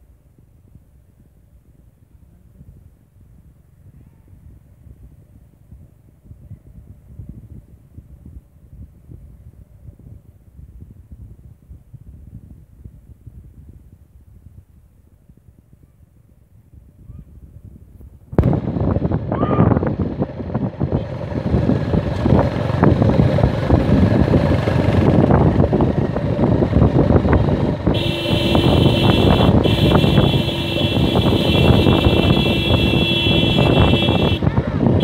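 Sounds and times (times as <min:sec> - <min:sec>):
wind on microphone: 0:00.3 - 0:35.0
vehicle engine driving fast: 0:18.3 - 0:35.0.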